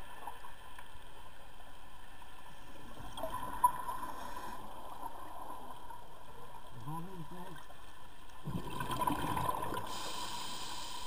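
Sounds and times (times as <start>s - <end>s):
underwater rushing noise: 2.1s - 6.8s, 8.3s - 11.0s.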